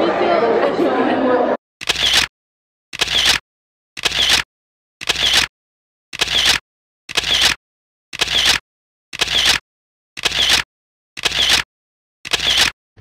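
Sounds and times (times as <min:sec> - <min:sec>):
camera shutter clicks: 0:01.8 - 0:02.3, 0:03.0 - 0:03.4, 0:04.0 - 0:04.4, 0:05.0 - 0:05.5, 0:06.2 - 0:07.6, 0:08.2 - 0:08.6, 0:09.2 - 0:09.6, 0:10.2 - 0:10.6, 0:11.2 - 0:11.6, 0:12.3 - 0:12.7.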